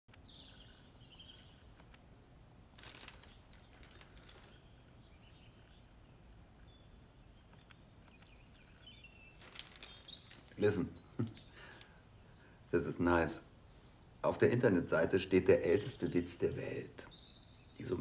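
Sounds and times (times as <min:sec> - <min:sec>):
faint bird chirps: 0:00.1 - 0:18.0
brief rustle: 0:02.8 - 0:04.6, 0:09.3 - 0:10.6.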